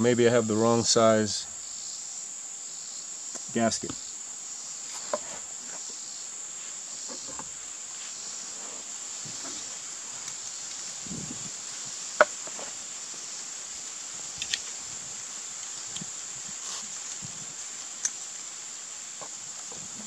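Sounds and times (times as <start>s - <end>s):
insect chirring: 0.0s - 20.0s.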